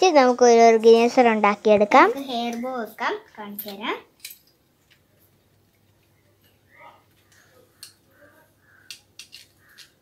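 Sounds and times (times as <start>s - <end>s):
plastic hairbands clicking on racket: 7.2s - 10.0s.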